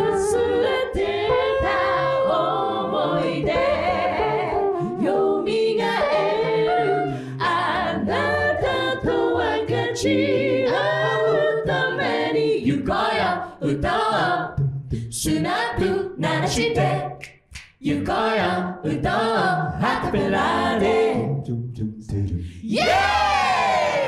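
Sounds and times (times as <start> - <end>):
a cappella group singing in harmony: 0.0 - 24.0
sung bass line: 19.7 - 24.0.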